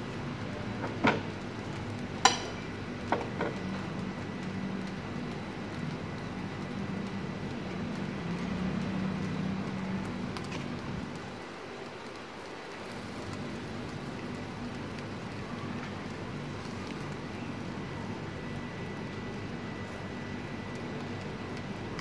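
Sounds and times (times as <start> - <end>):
meat sizzling over charcoal: 0.0 - 22.0
faint crackles: 0.1 - 22.0.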